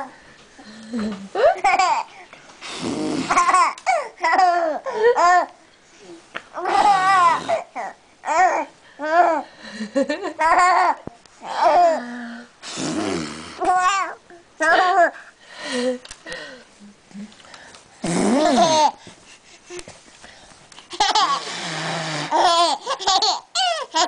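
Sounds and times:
infant laughing and cooing: 3.2 - 5.6, 6.6 - 9.5, 10.2 - 12.0, 18.4 - 19.9, 20.9 - 24.0.

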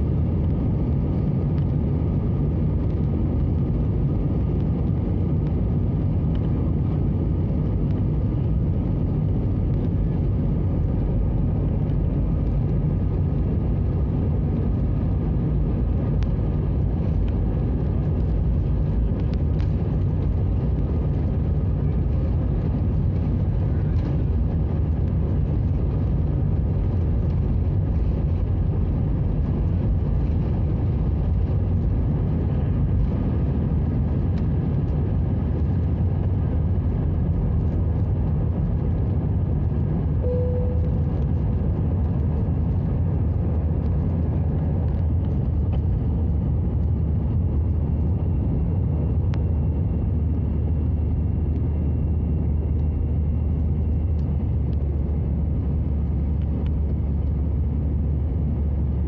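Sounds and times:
jet engines rumbling in cabin: 0.0 - 59.0
brief cabin tone: 40.2 - 41.2.

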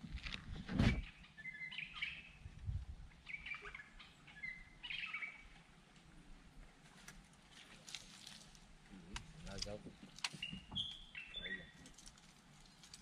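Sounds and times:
bird chirping: 0.9 - 2.5, 3.2 - 5.7, 9.9 - 11.9.

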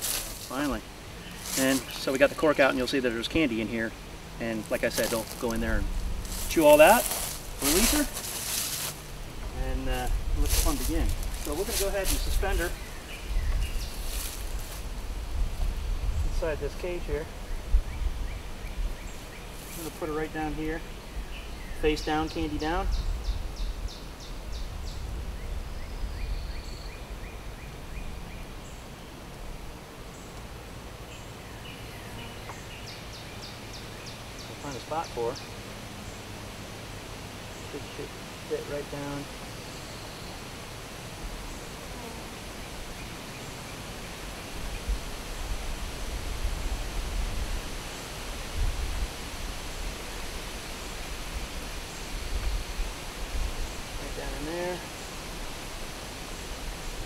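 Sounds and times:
wind buffeting microphone: 9.2 - 19.2, 44.6 - 50.0.

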